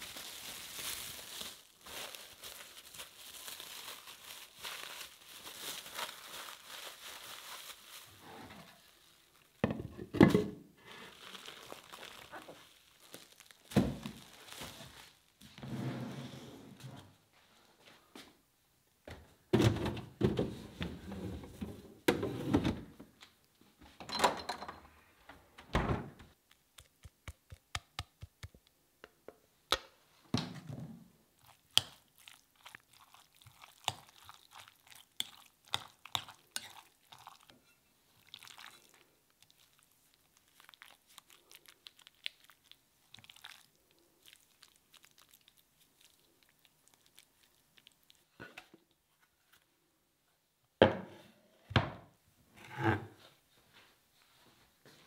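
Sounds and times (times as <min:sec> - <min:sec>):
wet squelching: 0:31.4 - 0:37.5, 0:38.2 - 0:48.3.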